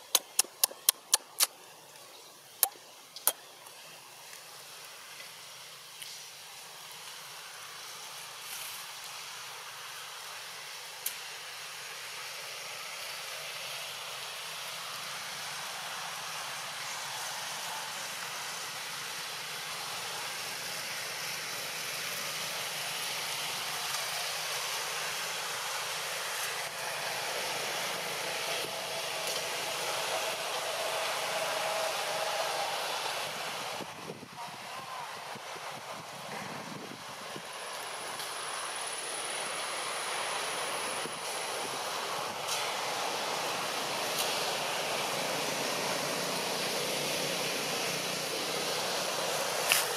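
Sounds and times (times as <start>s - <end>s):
outdoor background hiss: 0.0s - 49.9s.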